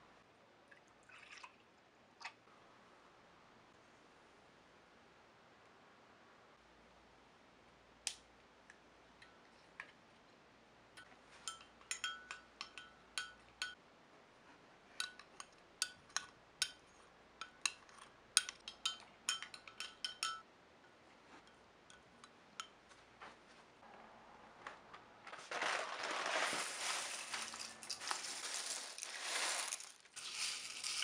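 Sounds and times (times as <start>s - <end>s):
metal spoon clinking in glass mug: 11.5s - 13.8s, 18.4s - 20.4s.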